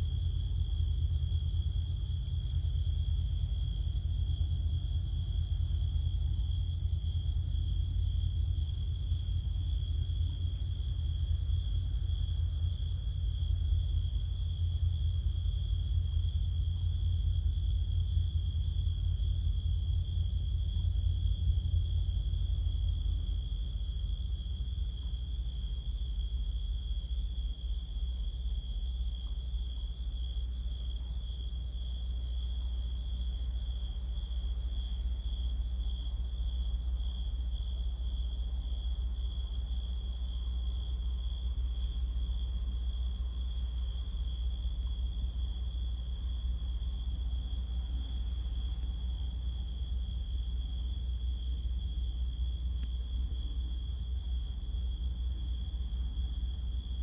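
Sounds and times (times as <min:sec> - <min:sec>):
low rumble: 0:00.0 - 0:28.7
crickets trilling and chirping: 0:00.0 - 0:57.0.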